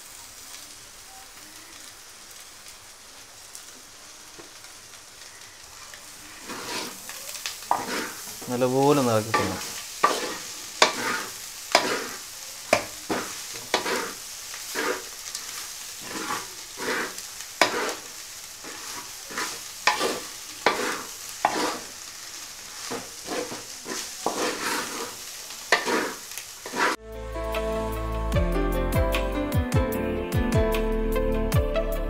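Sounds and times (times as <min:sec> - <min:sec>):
frying sizzle: 0:00.0 - 0:28.4
spatula scraping metal pot: 0:06.4 - 0:07.0, 0:07.7 - 0:08.3, 0:09.3 - 0:12.2, 0:12.8 - 0:15.1, 0:16.0 - 0:21.9, 0:22.9 - 0:27.0.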